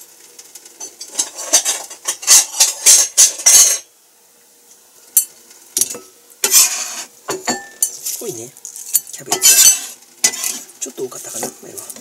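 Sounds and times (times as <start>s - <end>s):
knife scraping cabbage on board: 6.4s - 7.1s, 9.5s - 10.7s.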